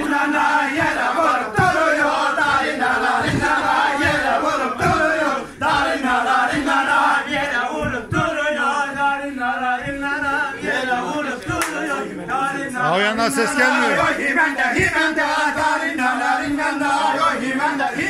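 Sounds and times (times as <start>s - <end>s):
low thumping beat: 0.0s - 10.5s, 13.0s - 17.1s
men singing a chant-like tune: 0.0s - 18.0s.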